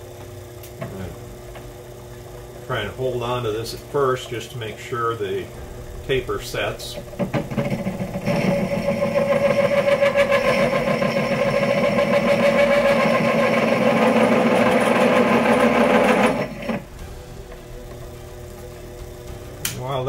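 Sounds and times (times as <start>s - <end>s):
drill bit chattering on lathe: 7.1s - 16.9s.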